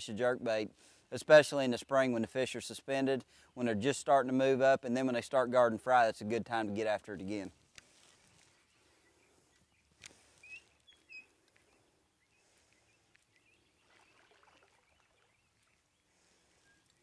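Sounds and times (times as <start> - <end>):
faint high chirps: 8.8 - 17.0.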